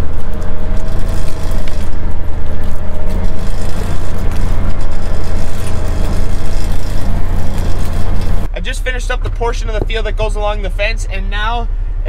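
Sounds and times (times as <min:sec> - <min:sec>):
faint steady whine: 0:00.0 - 0:12.0
utility vehicle engine rumble: 0:00.0 - 0:12.0.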